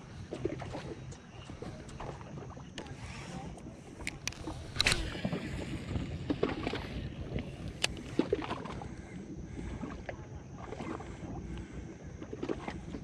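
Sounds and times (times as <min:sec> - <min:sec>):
low steady rumble: 0:00.0 - 0:13.0
fishing reel clicks: 0:02.8 - 0:05.3, 0:07.6 - 0:08.1.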